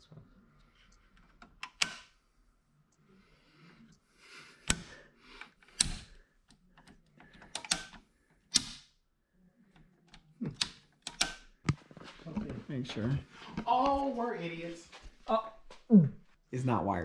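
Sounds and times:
circuit breaker clicks: 6.8s - 8.9s, 10.1s - 11.6s.

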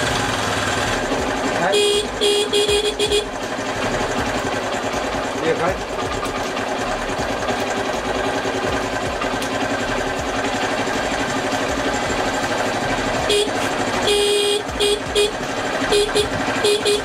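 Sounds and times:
motorcycle engine idling: 0.0s - 17.0s
electric horn honk: 1.6s - 3.3s, 13.3s - 17.0s.

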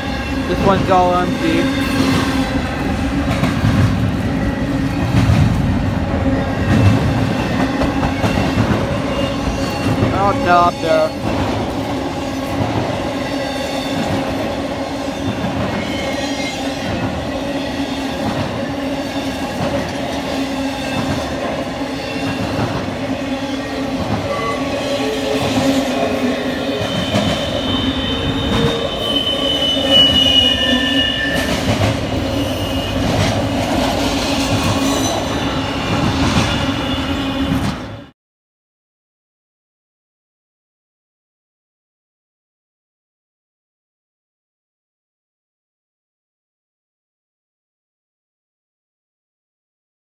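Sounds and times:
freight train rumbling: 0.0s - 38.1s
metallic wheel squeal: 23.5s - 33.3s.

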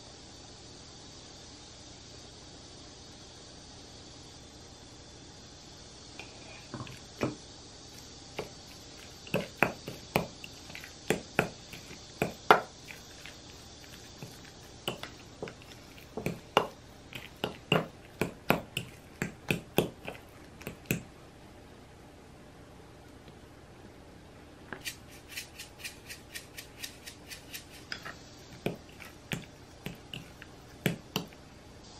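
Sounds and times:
soft squishing: 7.9s - 21.1s, 26.7s - 31.4s
spoon scraping glass bowl: 8.7s - 21.0s, 24.8s - 31.4s.

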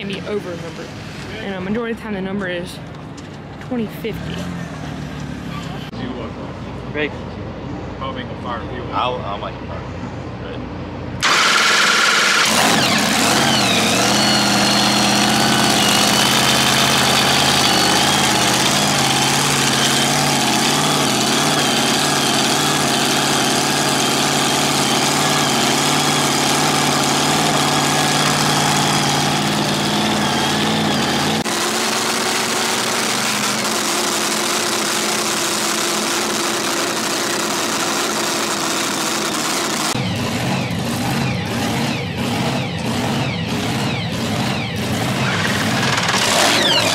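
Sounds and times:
racing engine idling loudly: 11.2s - 46.9s.

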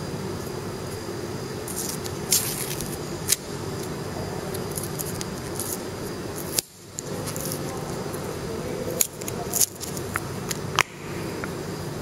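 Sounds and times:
wrapper crinkling and tearing: 1.7s - 3.4s, 9.0s - 10.0s.

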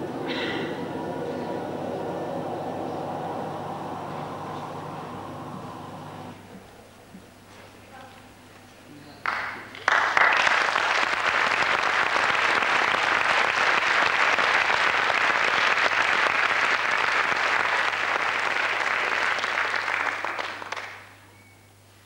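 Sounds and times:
audience applauding: 9.2s - 21.2s.

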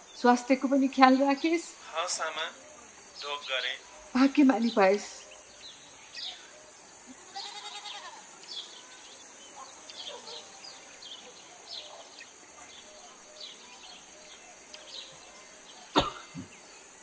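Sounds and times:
bird chirps: 0.0s - 17.0s
steady high hiss: 0.0s - 17.0s
animal bleat: 7.1s - 8.3s.

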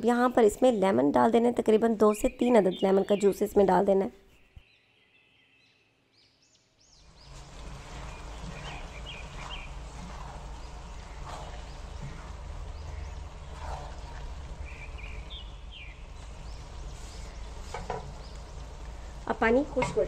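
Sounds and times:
birds chirping faintly: 0.0s - 20.0s
cooking hiss: 7.0s - 20.0s
low hum: 7.1s - 19.8s
spatula scraping steel pot: 7.4s - 15.2s.

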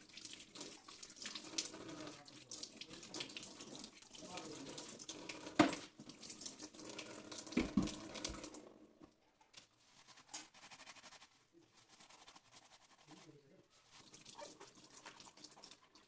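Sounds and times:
water splashes and drips: 0.0s - 8.6s, 13.9s - 16.0s
tap water running into sink: 0.0s - 8.7s, 14.1s - 16.0s
sponge scrubbing and squeezing: 9.8s - 16.0s.

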